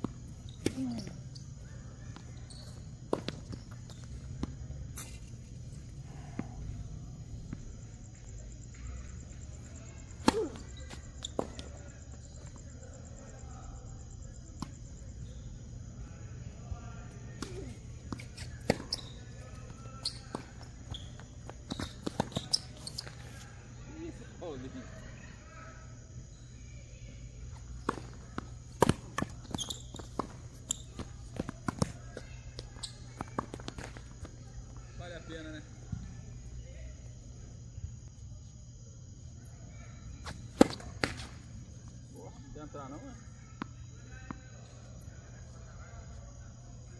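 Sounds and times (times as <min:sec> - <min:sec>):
tennis racket hitting ball: 0:17.4 - 0:22.9, 0:27.8 - 0:32.0
players' footsteps: 0:17.4 - 0:23.4, 0:27.5 - 0:34.7.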